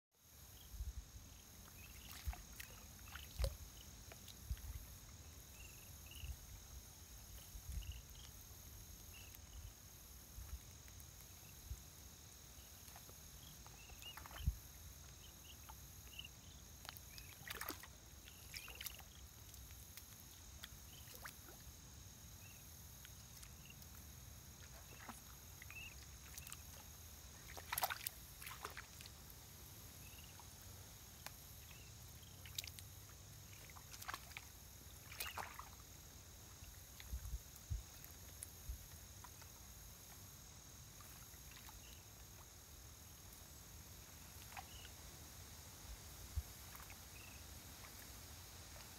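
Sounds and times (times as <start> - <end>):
water sloshing and splashing: 1.7 - 5.1, 16.8 - 21.7, 24.5 - 29.2, 31.2 - 38.4.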